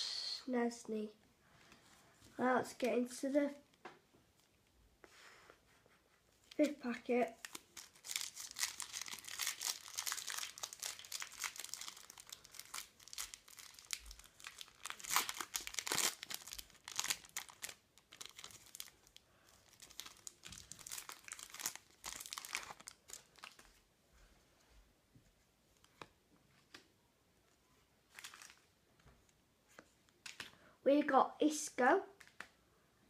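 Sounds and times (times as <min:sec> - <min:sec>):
foil card packet crinkling and tearing: 0:06.5 - 0:23.7, 0:28.1 - 0:28.6.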